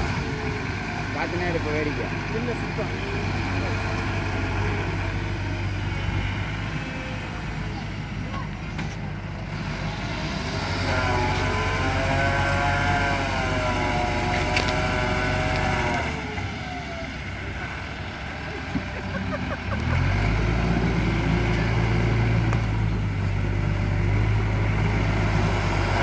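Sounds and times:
lorry diesel engine revving: 0.0s - 26.0s.

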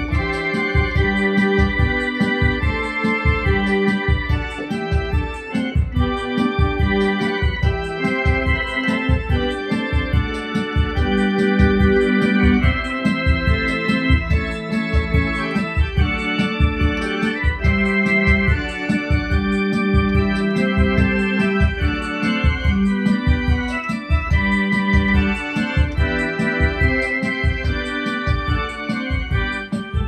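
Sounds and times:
electronic keyboard playing a hymn: 0.0s - 30.0s.

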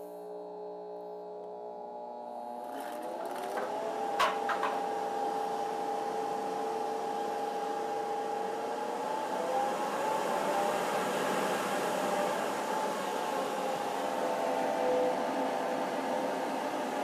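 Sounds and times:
electric blower motor whining: 1.4s - 16.8s.

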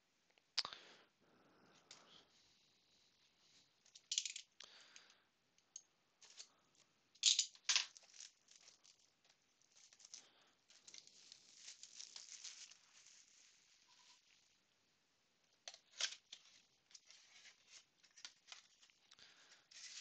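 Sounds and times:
plastic crinkling: 7.2s - 14.6s, 15.7s - 20.0s
plastic shrink wrap tearing: 7.8s - 14.5s.

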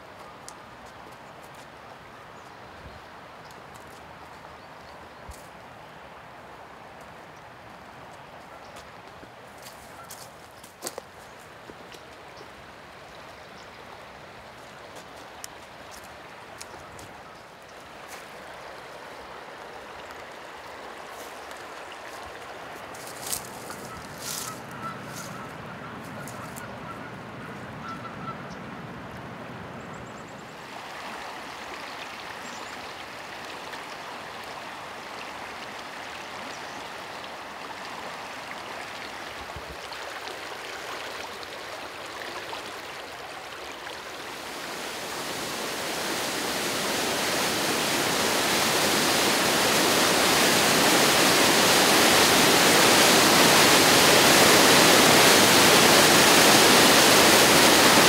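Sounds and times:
river water rushing: 0.0s - 27.9s, 30.4s - 58.0s
white water pouring over ledge: 43.9s - 58.0s.

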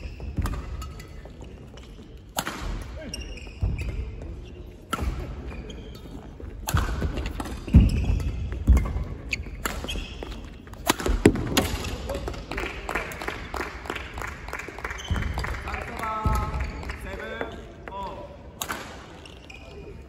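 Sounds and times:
shoes squeaking on wooden floor: 3.0s - 4.8s, 5.4s - 10.8s
racket hitting shuttlecock: 10.7s - 12.4s.

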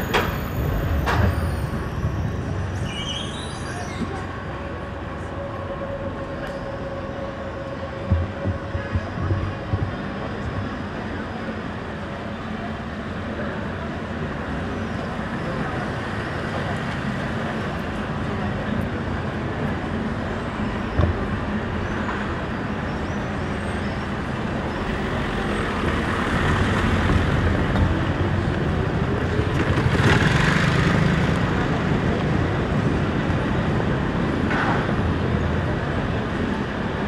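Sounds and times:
street traffic passing: 0.0s - 37.0s.

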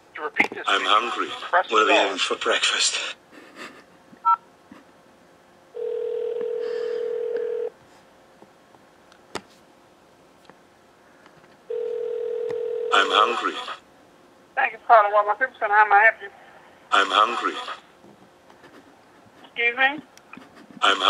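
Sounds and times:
telephone ringback tone: 5.8s - 7.7s, 11.7s - 13.1s.

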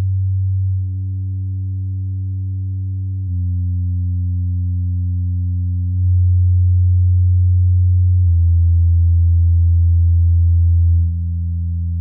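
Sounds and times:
low bass test tone: 0.0s - 12.0s.

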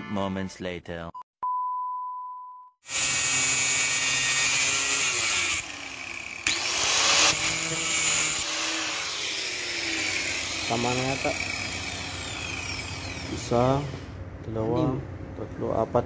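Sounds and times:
angle grinder cutting steel rod: 2.9s - 14.1s.

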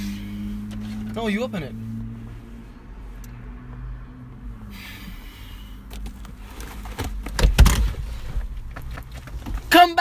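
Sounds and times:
car door opening: 5.9s - 9.9s.

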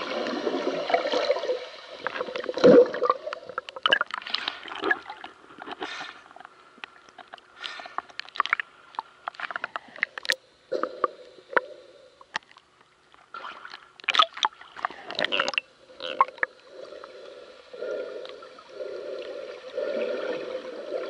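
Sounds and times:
sharp clicks and knocks underwater: 2.0s - 16.6s.

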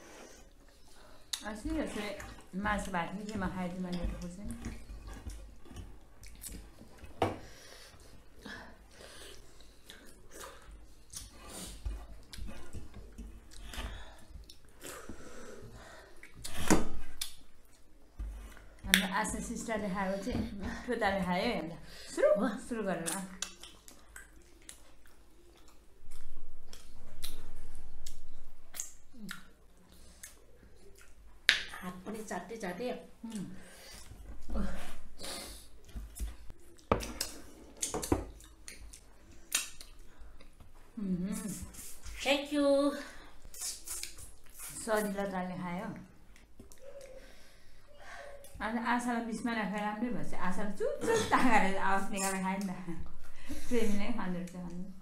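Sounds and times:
people chewing: 0.0s - 19.1s, 23.0s - 31.7s, 33.2s - 42.2s, 43.2s - 45.3s, 46.0s - 48.6s
people eating with wet smacking: 0.0s - 21.2s, 21.8s - 42.2s, 43.2s - 48.6s.

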